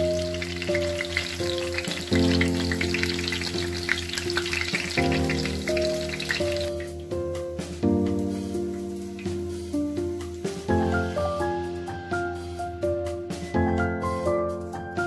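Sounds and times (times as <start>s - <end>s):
fritters frying in hot oil: 0.0s - 7.0s
background music: 0.0s - 15.0s.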